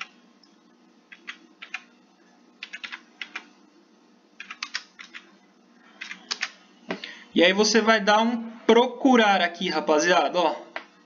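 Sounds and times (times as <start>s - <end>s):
typing on computer keyboard: 1.1s - 1.9s, 2.6s - 3.5s, 4.4s - 5.3s, 6.0s - 6.6s.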